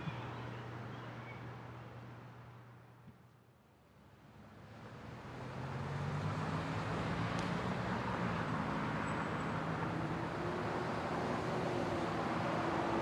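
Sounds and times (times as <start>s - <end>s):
tyres on road: 4.0s - 13.0s.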